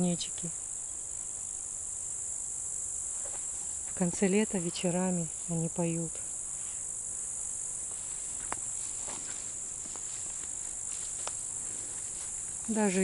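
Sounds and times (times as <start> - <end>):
grasshoppers chirring: 0.0 - 13.0
faint ticks: 9.9 - 11.4.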